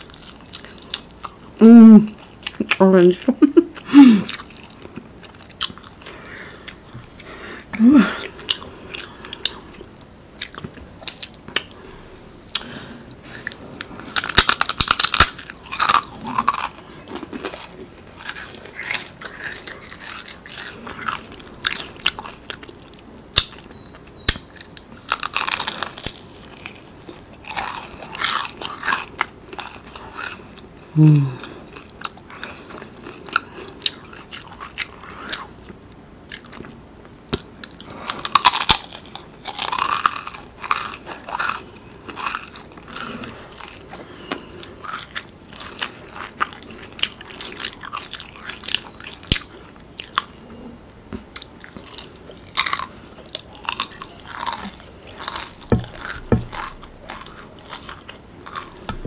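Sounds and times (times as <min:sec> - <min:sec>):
crunchy chewing: 0:00.0 - 0:02.8, 0:04.2 - 0:59.0
person humming: 0:01.6 - 0:02.2, 0:07.8 - 0:08.3, 0:30.9 - 0:31.5.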